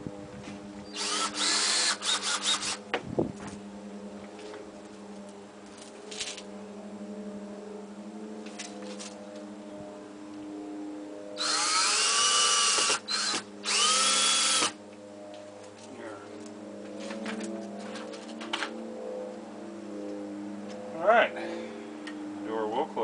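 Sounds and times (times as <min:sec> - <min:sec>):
cordless drill driving screw: 0:00.9 - 0:02.8, 0:11.4 - 0:14.8.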